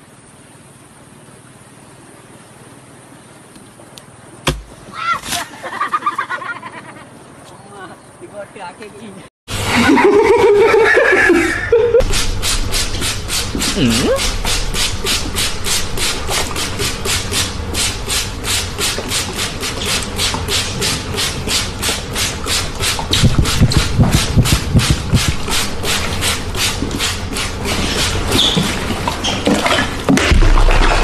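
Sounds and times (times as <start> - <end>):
spray bottle hissing pulses: 12.0 - 28.2
low thudding: 23.1 - 25.7.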